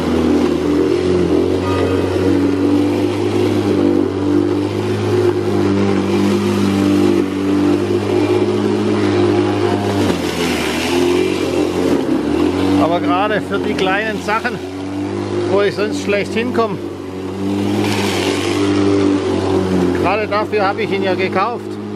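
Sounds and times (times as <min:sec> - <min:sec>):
lawn mower cutting tall grass: 0:00.0 - 0:21.9.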